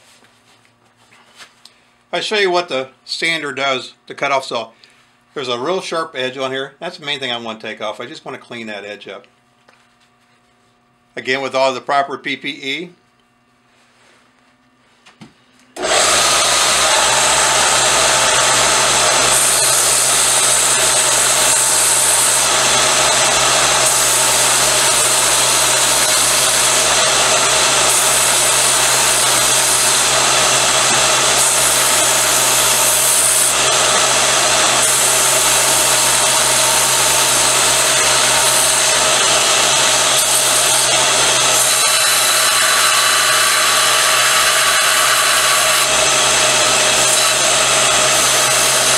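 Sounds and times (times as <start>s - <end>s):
belt sander grinding steel: 15.8s - 48.9s.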